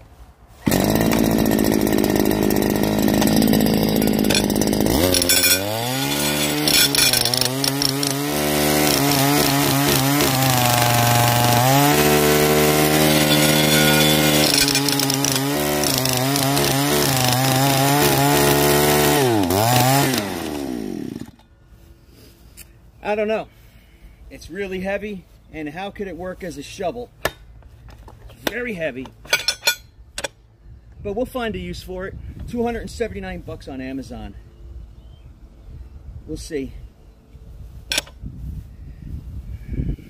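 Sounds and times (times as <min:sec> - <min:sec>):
two-stroke engine revving: 0:00.6 - 0:21.3.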